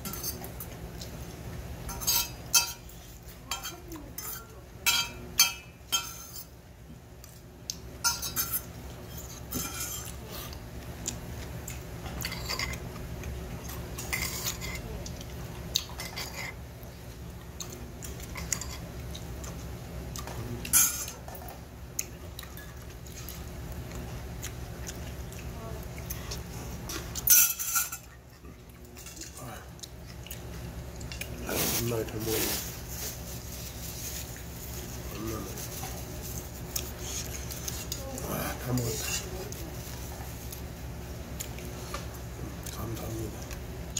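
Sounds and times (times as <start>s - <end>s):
chewing: 0.3s - 1.7s, 8.6s - 27.3s, 28.0s - 31.8s, 33.0s - 43.9s.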